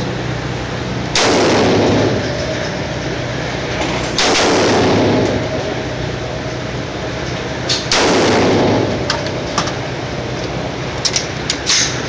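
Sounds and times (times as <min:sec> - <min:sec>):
rifle shots echoing indoors: 0:01.2 - 0:02.7, 0:04.1 - 0:05.8, 0:07.7 - 0:09.5.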